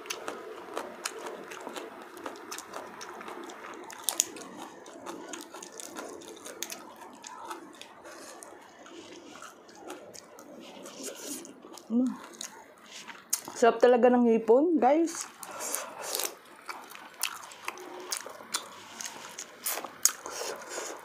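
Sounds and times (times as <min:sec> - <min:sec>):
shrimp shell cracking: 0:01.1 - 0:08.0.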